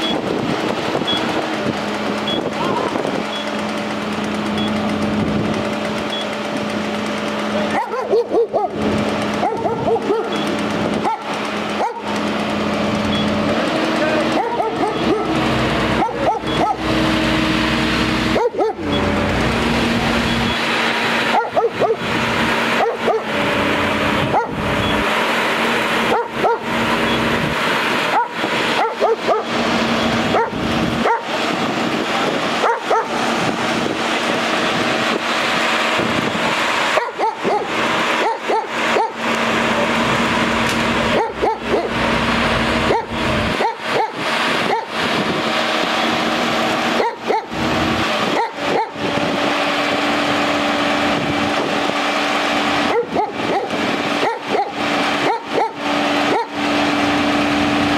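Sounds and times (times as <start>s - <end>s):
fire engine humming: 0.0s - 57.9s
dog barking: 7.7s - 8.8s, 9.4s - 10.4s, 11.0s - 12.1s, 14.3s - 15.4s, 16.0s - 16.8s, 18.4s - 18.8s, 21.3s - 22.0s, 22.8s - 23.3s, 24.3s - 24.6s, 26.1s - 26.7s, 28.1s - 29.5s, 30.3s - 31.3s, 32.6s - 33.2s, 37.0s - 39.2s, 41.1s - 42.0s, 42.9s - 44.9s, 47.0s - 47.5s, 48.3s - 49.0s, 52.9s - 56.5s.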